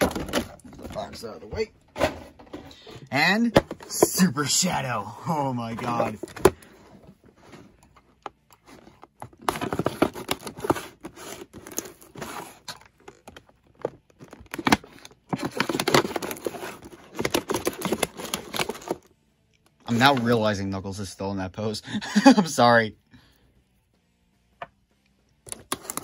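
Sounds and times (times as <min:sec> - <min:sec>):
plastic tearing: 0:08.0 - 0:19.1, 0:25.4 - 0:26.0
plastic packaging crinkling: 0:09.3 - 0:19.1.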